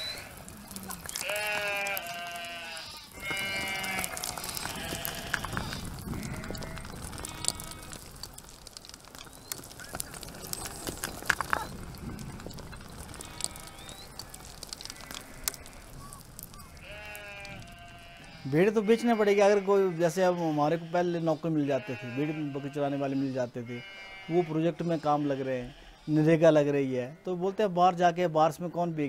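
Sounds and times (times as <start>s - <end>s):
hooves clicking on loose stones: 0.0s - 19.6s
sheep and goats bleating: 0.0s - 27.8s.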